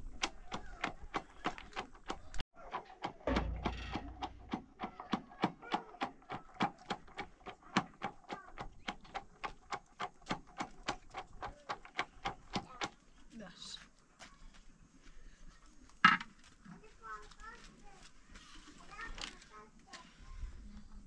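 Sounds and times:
wooden pestle pounding: 2.9s - 13.0s.

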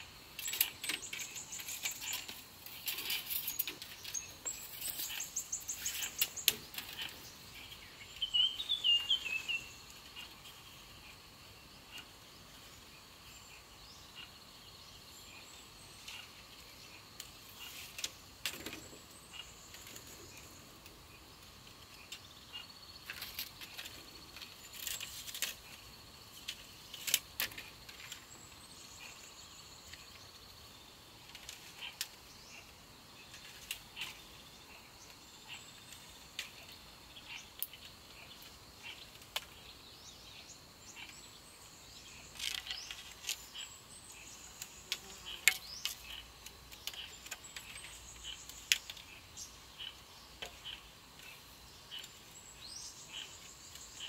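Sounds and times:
bird chirps: 0.0s - 25.9s, 26.6s - 54.0s
high insect drone: 0.0s - 54.0s
bamboo strips clicking and rustling: 0.2s - 8.3s, 16.0s - 22.3s, 23.0s - 29.2s, 31.1s - 39.8s, 42.1s - 43.7s, 44.5s - 52.4s.

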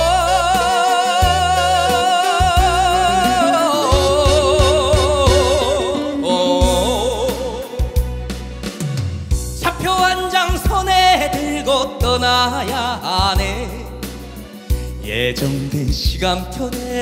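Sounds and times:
man singing with vibrato: 0.0s - 8.3s, 9.6s - 17.0s
band backing with bass: 0.0s - 17.0s.

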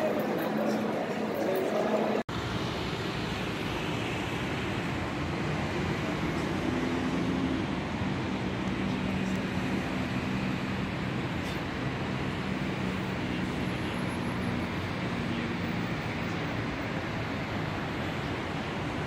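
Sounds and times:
road traffic passing: 0.0s - 19.0s.

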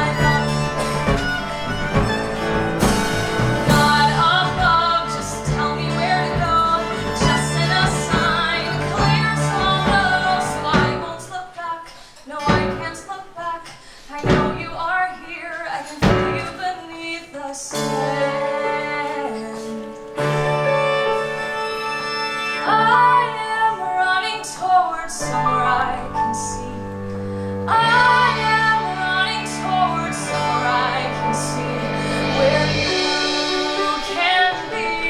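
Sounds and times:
woman singing with vibrato: 0.0s - 1.4s, 3.5s - 20.4s, 22.6s - 35.0s
deep bass notes: 0.0s - 11.1s
live band sustained chords: 0.0s - 11.3s, 17.7s - 35.0s.

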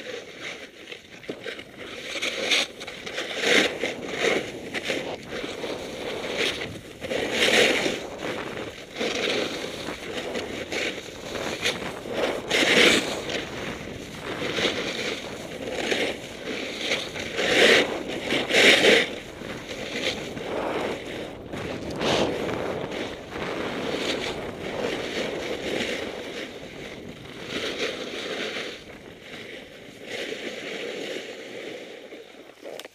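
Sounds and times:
snowboard scraping over snow: 0.0s - 32.9s.

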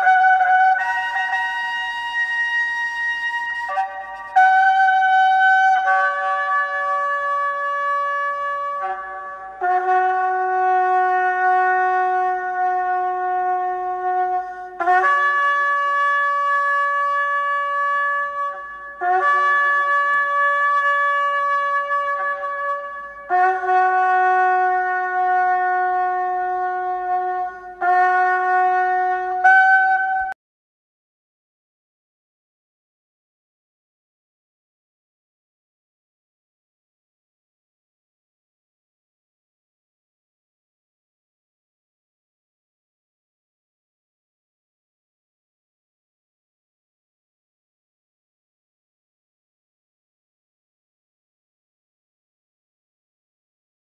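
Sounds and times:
shofar blasts: 0.0s - 30.4s.

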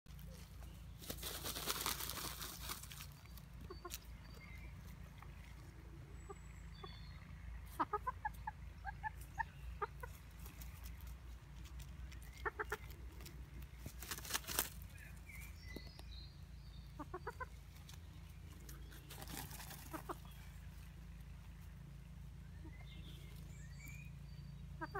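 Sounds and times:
scratchy rustle of dust: 0.2s - 4.0s, 10.4s - 15.4s, 18.9s - 20.8s
chickens clucking: 0.2s - 16.0s, 16.8s - 24.9s.

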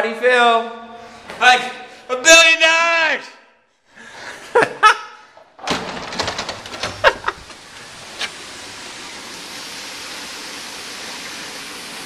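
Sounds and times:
sharp knocks: 5.6s - 7.6s
water hissing: 7.0s - 12.0s.

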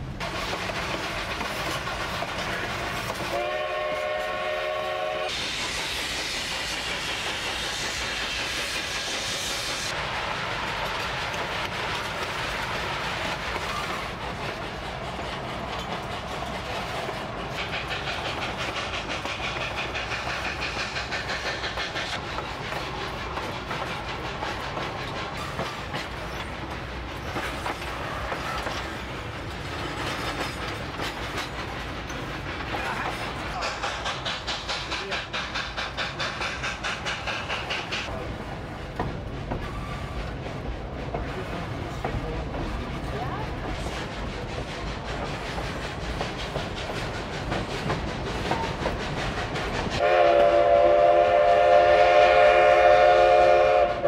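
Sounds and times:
train wheels clattering on rails: 0.0s - 54.0s
steam whistle: 3.3s - 5.4s, 50.0s - 54.0s.

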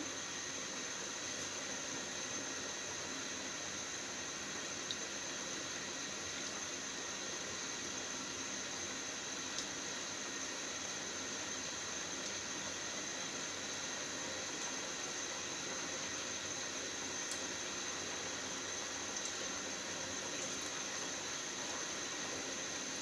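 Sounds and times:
faint tick: 9.5s - 9.7s.

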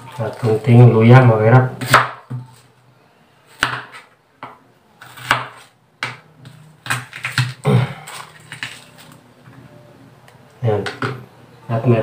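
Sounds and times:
knife chopping on wooden board: 1.8s - 2.5s, 3.6s - 7.6s.

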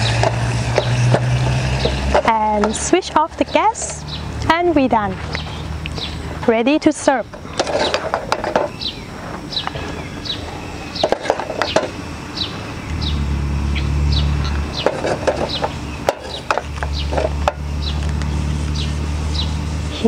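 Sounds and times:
birds chirping: 0.0s - 20.0s
low steady hum: 0.0s - 20.0s.

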